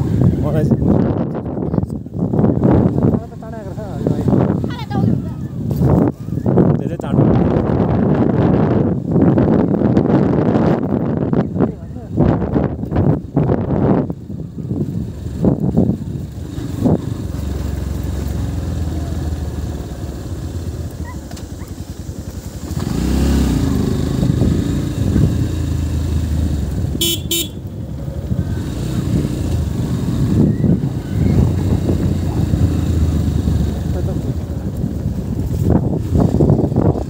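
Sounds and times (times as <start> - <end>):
motorcycle engine running: 9.7 - 37.0
horn short beeps: 27.0 - 27.6.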